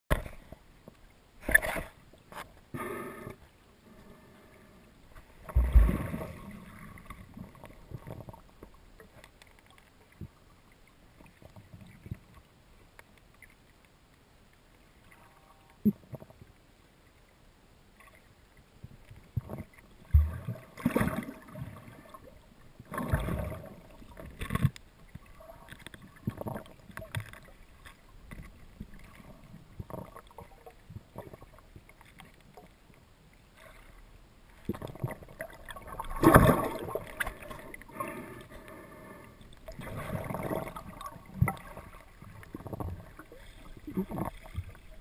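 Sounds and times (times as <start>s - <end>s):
muffled water sloshing: 3.8s - 12.7s, 18.9s - 45.0s.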